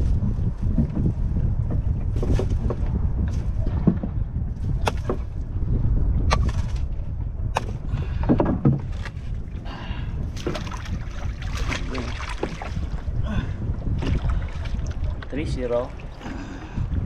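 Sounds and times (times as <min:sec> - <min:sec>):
wind and water rumble: 0:00.0 - 0:17.0
knocks against boat hull: 0:07.6 - 0:09.2.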